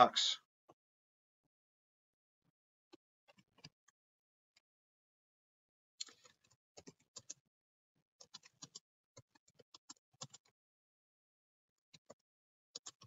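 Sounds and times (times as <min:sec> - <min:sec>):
computer keyboard typing: 0:08.2 - 0:10.5, 0:12.8 - 0:13.0.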